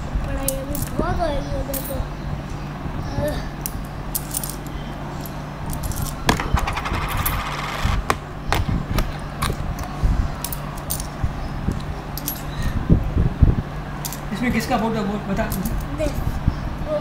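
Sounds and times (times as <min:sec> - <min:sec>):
coins clinking and jingling: 0:04.1 - 0:08.0.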